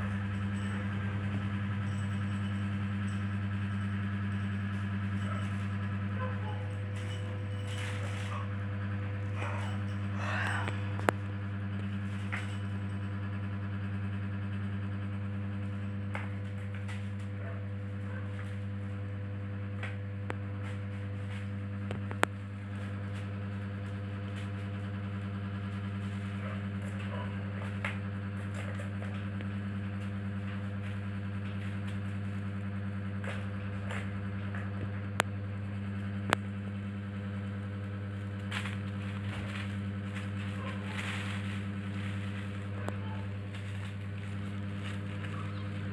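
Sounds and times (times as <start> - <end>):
low mechanical hum: 0.0 - 45.9
plastic sheet crinkling: 39.2 - 45.9.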